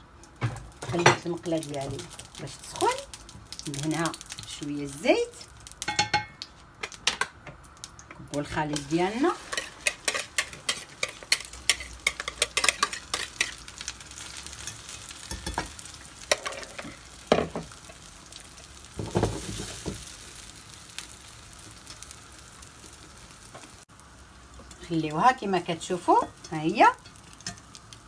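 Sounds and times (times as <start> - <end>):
food sizzling in frying pan: 0.0 - 28.0
utensil scraping bowl and pan: 8.5 - 13.7.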